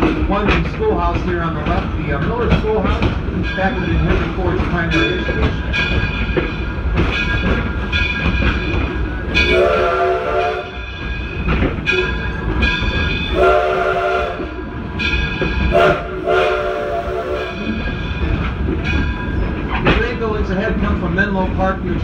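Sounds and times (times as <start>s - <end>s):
train rumbling and clattering: 0.0s - 22.0s
steam train whistle blasts: 9.4s - 10.8s, 13.3s - 14.5s, 15.7s - 17.6s.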